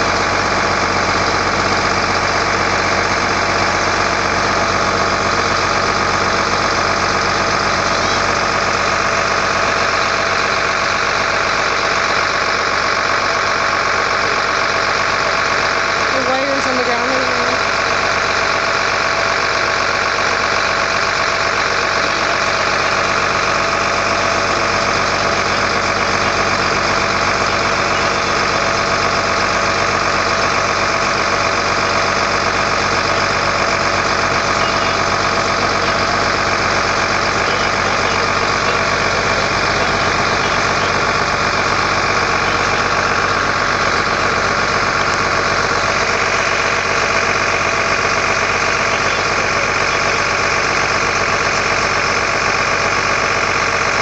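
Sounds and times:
engine idling: 0.0 - 54.0.

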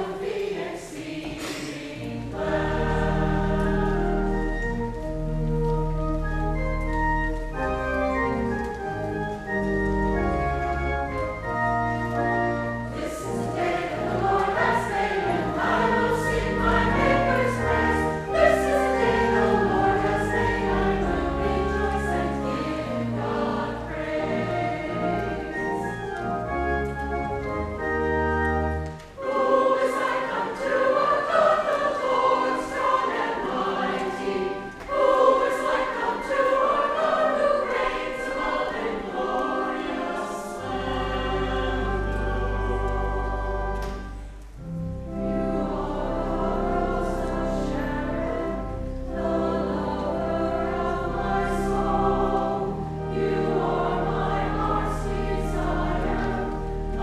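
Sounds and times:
choir singing a hymn: 0.0 - 57.0
organ bass notes: 2.3 - 28.9, 40.6 - 57.0.

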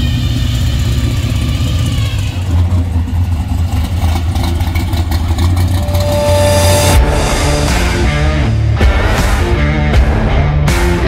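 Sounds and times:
deep car exhaust rumble: 0.0 - 9.2.

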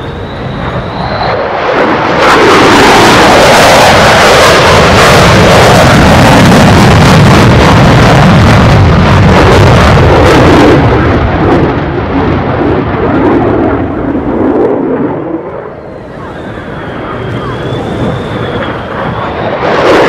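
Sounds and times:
faint high whine: 0.0 - 2.0, 15.6 - 20.0
jet engine roar: 0.0 - 20.0.

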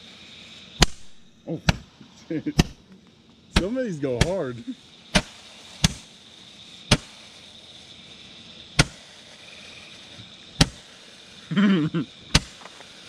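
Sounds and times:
roman candle firing pops: 0.8 - 1.9, 2.6 - 4.4, 5.1 - 6.1, 6.9 - 7.2, 8.7 - 9.1, 10.6 - 10.9, 12.3 - 13.0.

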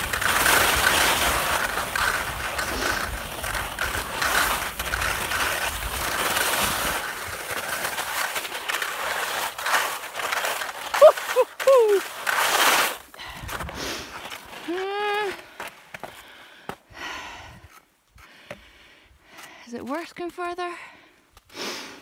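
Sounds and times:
skis scraping over snow: 0.0 - 16.4.

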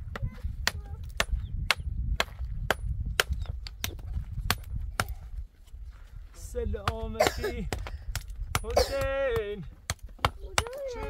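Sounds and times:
hammer striking rock: 0.1 - 5.2.

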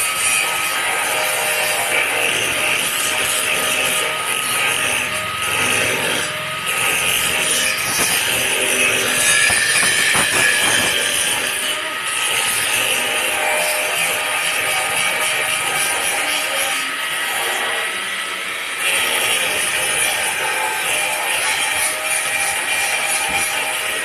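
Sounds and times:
welding arc hissing: 4.5 - 13.1.

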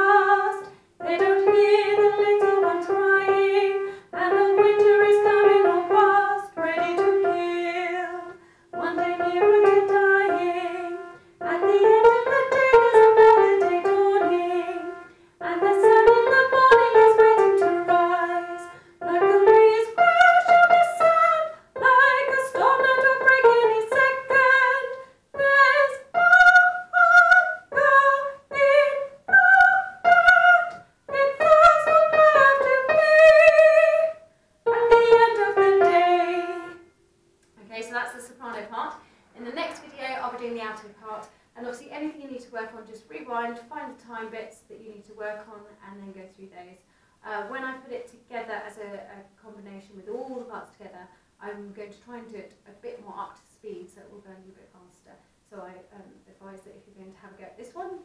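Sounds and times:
woman singing soprano: 0.0 - 36.8
piano playing: 0.0 - 36.9.

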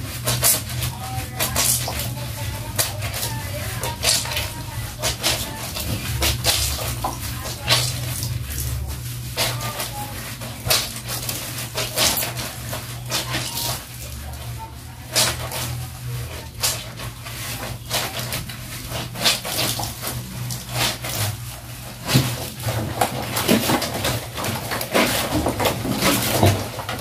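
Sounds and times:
splashing and squelching laundry: 0.0 - 27.0
steady low hum: 0.0 - 27.0.

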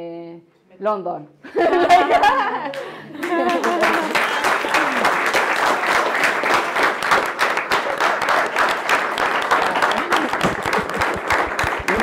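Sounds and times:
audience applauding: 2.7 - 12.0.

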